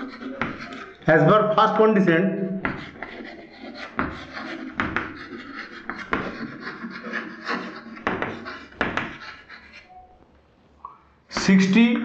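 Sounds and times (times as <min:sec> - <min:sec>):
chalk tapping on board: 0:00.0 - 0:01.0, 0:02.6 - 0:09.9
chalk scratching on blackboard: 0:00.0 - 0:01.1, 0:02.6 - 0:10.0.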